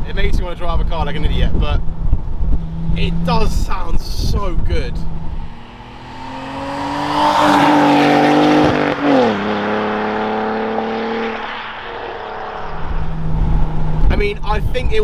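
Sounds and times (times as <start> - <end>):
car exhaust passing by: 4.9 - 14.1.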